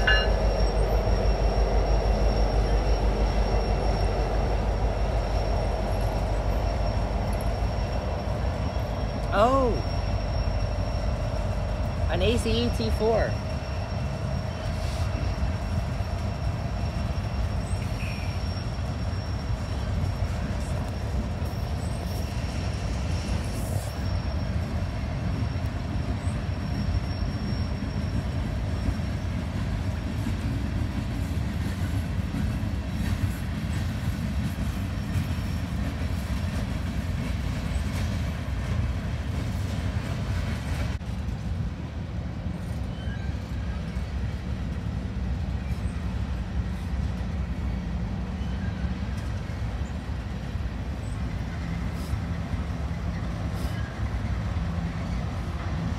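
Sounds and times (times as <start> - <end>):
high wheel squeal: 0.0 - 29.4
train wheels rumbling on rails: 0.0 - 55.9.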